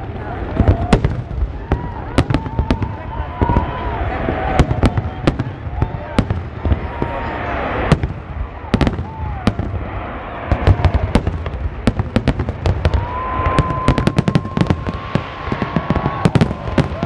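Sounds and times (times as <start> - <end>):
fireworks cracking and banging: 0.0 - 17.0
long steady whistle: 12.9 - 17.0.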